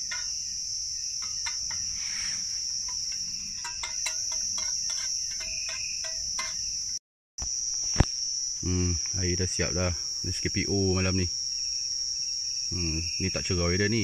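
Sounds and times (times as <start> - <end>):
crickets chirring: 0.0 - 14.0
spoon clinking against metal tin: 2.9 - 6.6.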